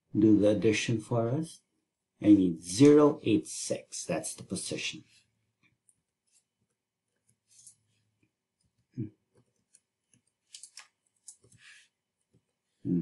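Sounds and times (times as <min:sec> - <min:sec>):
computer keyboard clicks: 0:10.5 - 0:11.6.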